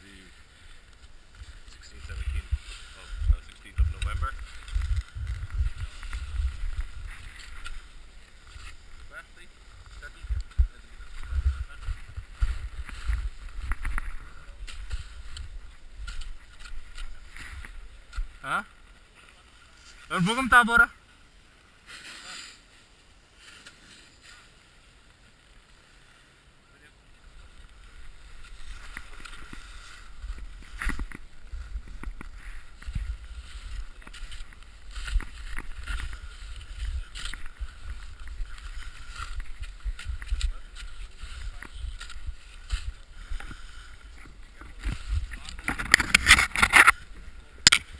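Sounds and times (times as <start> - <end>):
camera handling rumble: 44.2 - 47.9.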